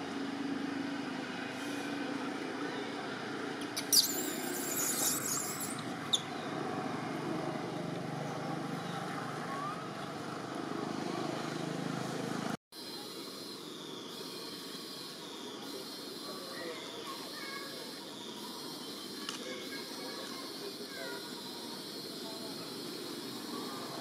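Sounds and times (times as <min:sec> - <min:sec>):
faint high whine: 0:12.8 - 0:24.0.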